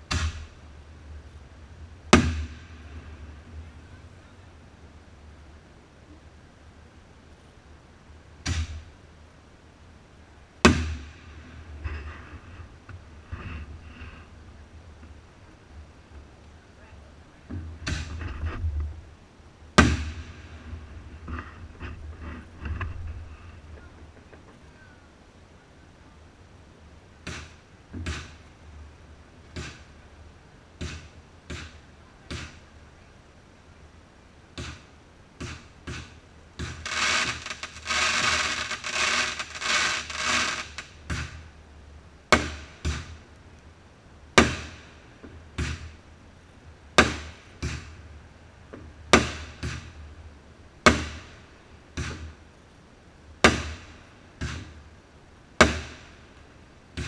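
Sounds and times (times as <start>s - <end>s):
fireworks crackling and hiss: 0.0s - 6.0s, 6.6s - 41.6s, 42.3s - 46.1s
fireworks bangs: 35.4s - 41.4s.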